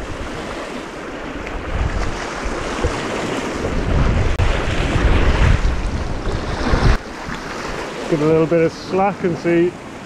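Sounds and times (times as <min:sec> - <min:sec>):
wind buffeting microphone: 0:00.0 - 0:07.8.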